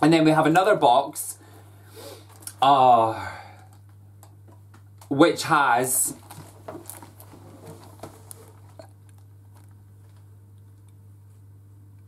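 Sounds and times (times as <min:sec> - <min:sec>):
steady low hum: 0:00.0 - 0:12.0
cardboard box rustling and tapping: 0:06.2 - 0:08.8.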